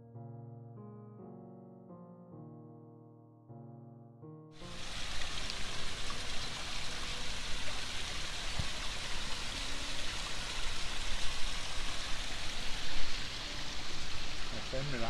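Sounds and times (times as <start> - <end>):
steady hissing noise: 4.6 - 15.0.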